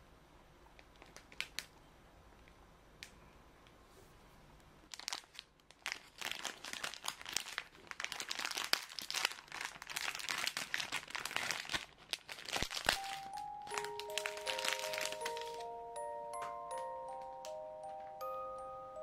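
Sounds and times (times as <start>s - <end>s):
plastic wrapper crinkling: 0.8s - 1.7s, 4.9s - 15.7s.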